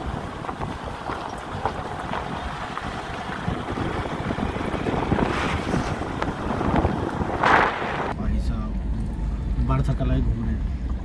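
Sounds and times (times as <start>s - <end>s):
wind buffeting microphone: 0.0s - 8.2s
tyre and road noise: 0.0s - 11.0s.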